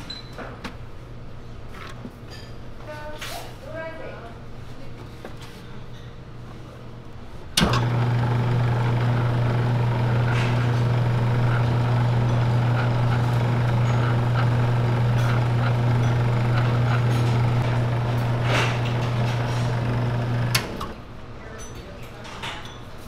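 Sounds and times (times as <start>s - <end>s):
noodle machine motor humming: 7.6s - 21.0s.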